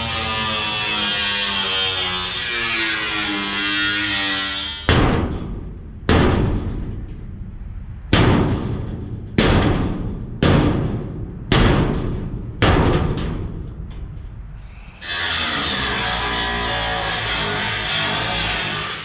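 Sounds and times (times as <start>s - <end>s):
heavy blows on steel container: 4.9s - 14.6s.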